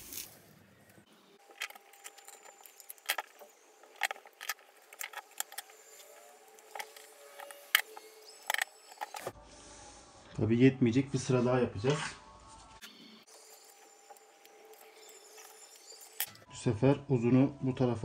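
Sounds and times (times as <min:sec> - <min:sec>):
tape clicks and crackles: 0:00.0 - 0:09.4.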